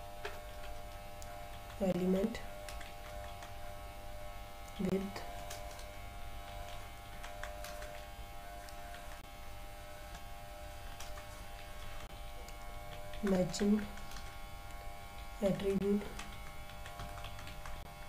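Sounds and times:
electrical hum and buzz: 0.0 - 18.0
keyboard typing clicks: 2.6 - 3.6, 6.6 - 8.0, 16.1 - 17.8.

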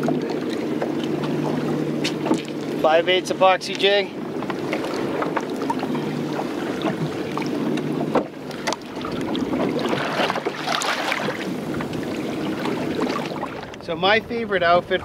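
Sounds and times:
water against boat hull: 0.0 - 14.0
wind on microphone: 0.0 - 15.0.

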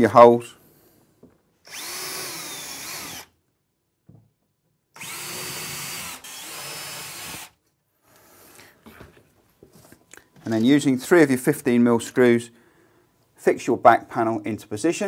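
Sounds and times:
cordless drill drilling chipboard: 1.7 - 3.3, 5.0 - 7.6.

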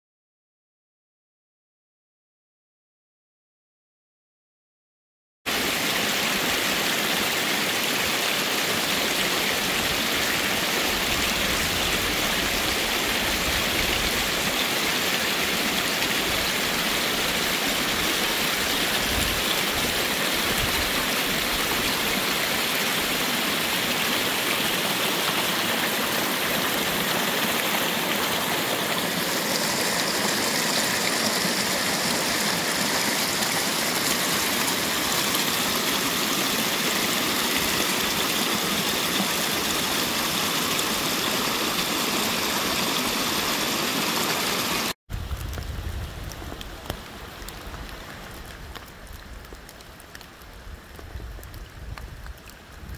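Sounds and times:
stream splashing over stones: 5.5 - 51.6.

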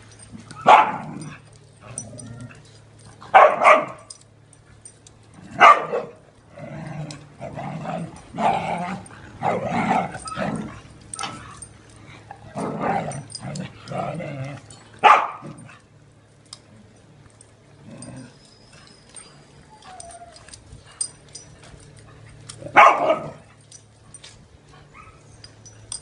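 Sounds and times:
dogs barking: 0.5 - 1.4, 3.3 - 4.2, 5.4 - 6.2, 15.0 - 15.8, 22.4 - 23.7.

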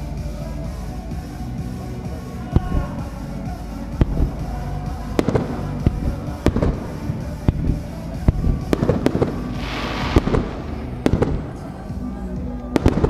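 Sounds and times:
music playing: 0.0 - 13.0
fireworks bangs: 4.0 - 11.7, 12.8 - 13.0.

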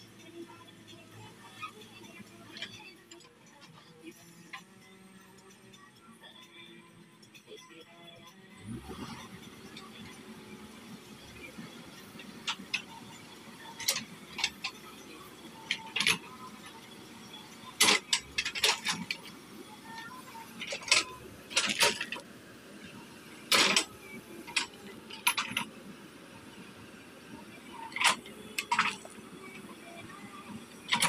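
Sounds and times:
engine hum: 8.5 - 31.0.

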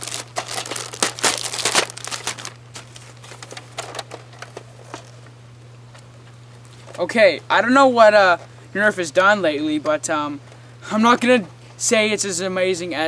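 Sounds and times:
plastic wrap crinkling: 0.0 - 5.2.

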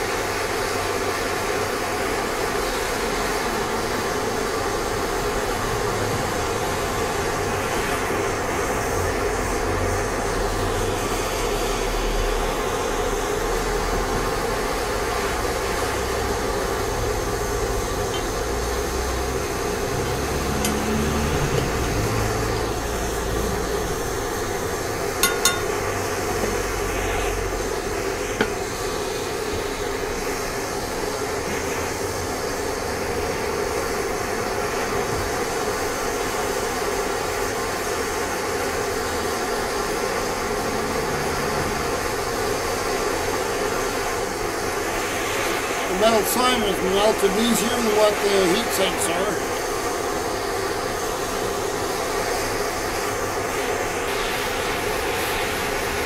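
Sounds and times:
propane torch rushing: 0.0 - 56.0
metal clink: 25.2 - 25.7.

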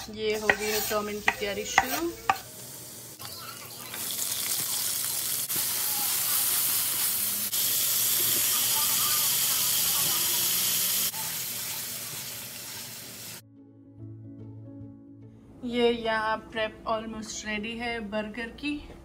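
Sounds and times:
spatula stirring in wok: 0.0 - 2.5
vegetables sizzling in oil: 0.0 - 13.4.

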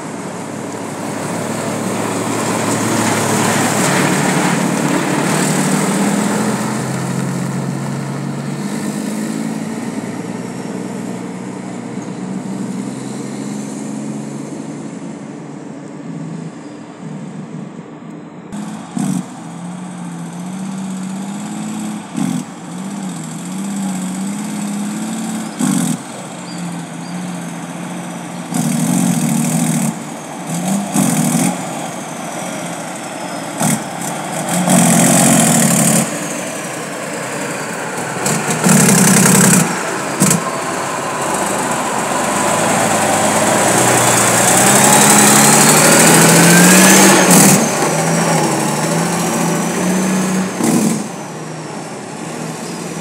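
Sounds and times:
dump truck diesel engine passing: 0.0 - 53.0.

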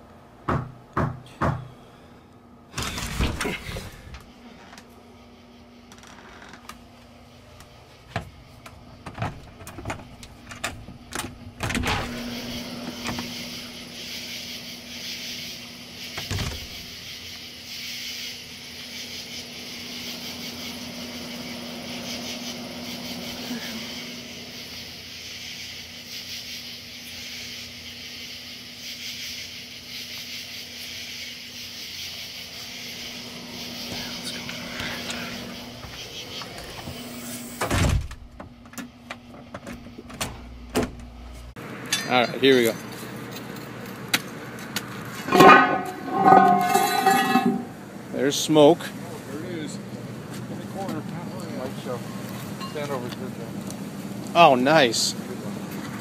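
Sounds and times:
door clicks and knocks: 9.0 - 12.1, 16.2 - 16.7
steady high hiss: 11.5 - 37.9, 45.0 - 55.6
low hum: 45.2 - 48.1.

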